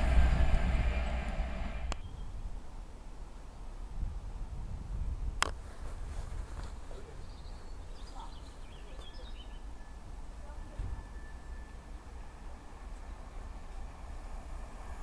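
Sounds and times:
steady low rumble: 0.0 - 2.0
faint birds chirping: 6.8 - 13.8.

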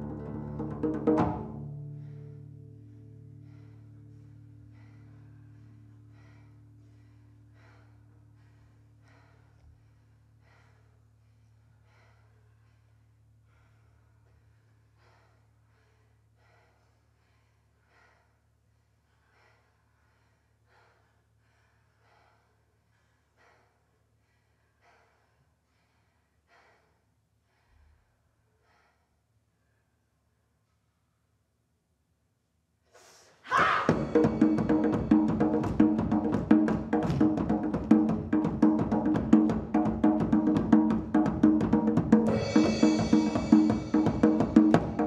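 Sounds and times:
people breathing: 1.8 - 31.4, 42.3 - 45.0.

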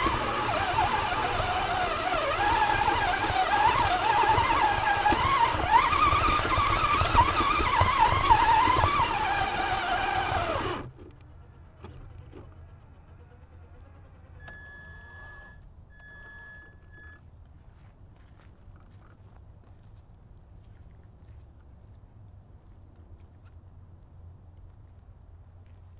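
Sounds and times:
electric motor whining: 0.0 - 17.0
short high beeps: 14.4 - 17.2.

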